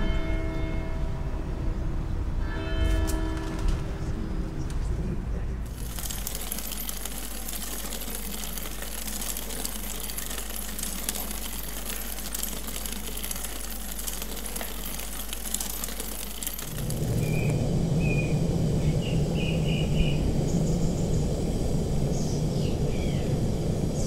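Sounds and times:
bike ticking and rattling: 5.6s - 17.6s
bicycle tyre and road noise: 5.6s - 24.0s.

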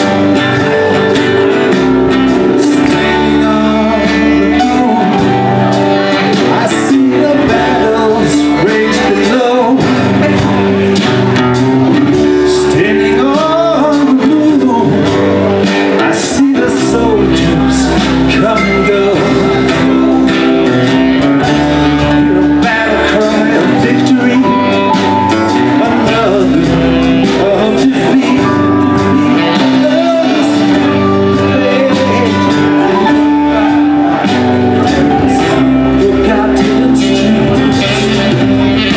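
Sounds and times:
electric guitar: 0.0s - 38.9s
keyboard: 0.0s - 38.9s
live rock band playing: 0.0s - 38.9s
strummed acoustic guitar: 0.0s - 38.9s
saxophone: 37.5s - 38.9s.

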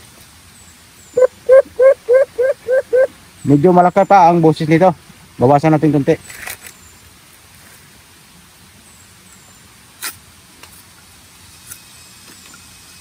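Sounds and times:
background hiss: 0.0s - 13.0s
faint high chirps: 1.0s - 4.3s.

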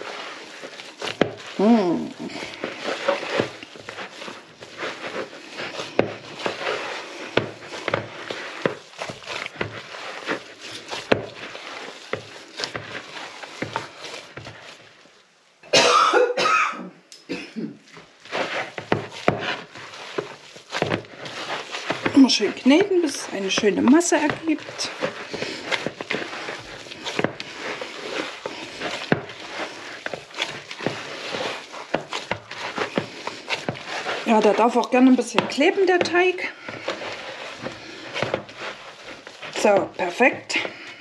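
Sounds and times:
hands kneading dough: 0.0s - 15.6s, 17.2s - 41.0s
person coughing: 15.7s - 17.8s.

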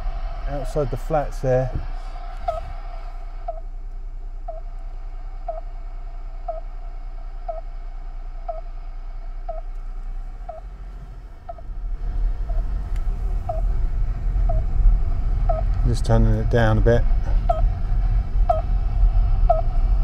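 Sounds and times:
car engine and road rumble: 0.0s - 20.0s
receiver bleeping: 2.4s - 2.7s, 6.5s - 6.7s, 8.5s - 8.7s, 9.5s - 9.7s, 10.5s - 10.7s, 13.5s - 13.7s, 14.5s - 14.7s, 15.4s - 15.8s, 17.5s - 17.7s, 18.5s - 18.7s, 19.5s - 19.7s.

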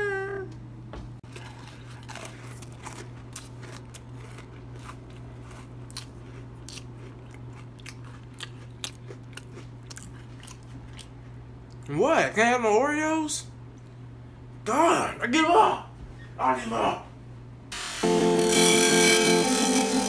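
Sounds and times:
person chewing cookie crunchily: 1.2s - 11.9s.

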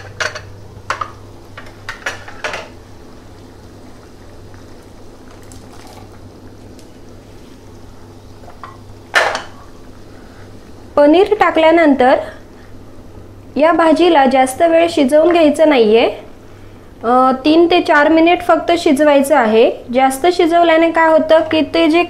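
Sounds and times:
puree bubbling in a pan: 0.0s - 14.0s
steady low hum: 0.0s - 22.0s.

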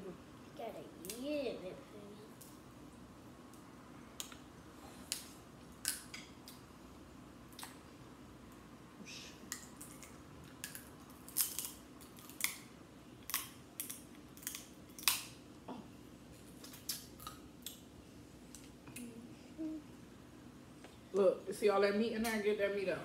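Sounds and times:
crab shells cracking: 9.5s - 15.4s.

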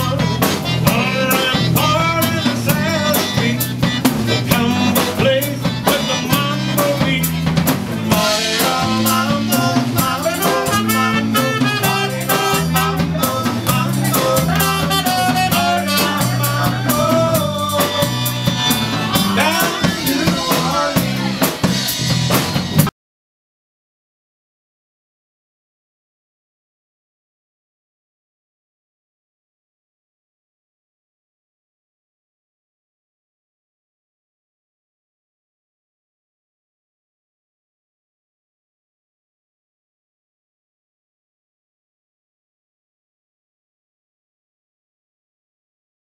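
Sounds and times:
button accordion: 0.0s - 22.9s
drum kit: 0.0s - 22.9s
electric bass: 0.0s - 22.9s
live band playing: 0.0s - 22.9s.

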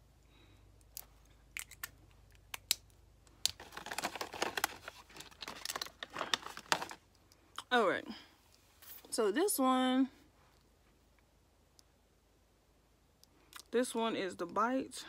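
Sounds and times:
packaging clicks: 3.4s - 7.0s
packaging crinkling: 3.4s - 7.1s.

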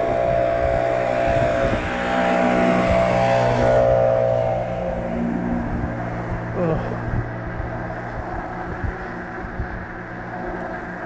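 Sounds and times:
electric motor whining: 0.0s - 6.0s
wind rushing over microphone: 0.0s - 11.0s.

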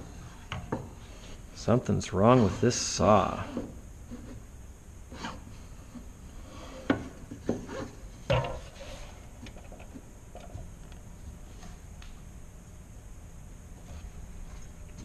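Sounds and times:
wooden board rubbing on saw: 2.2s - 4.4s.

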